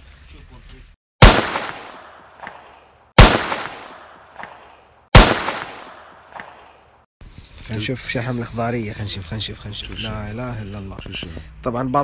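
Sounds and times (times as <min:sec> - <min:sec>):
gunshots: 0:01.2 - 0:06.9.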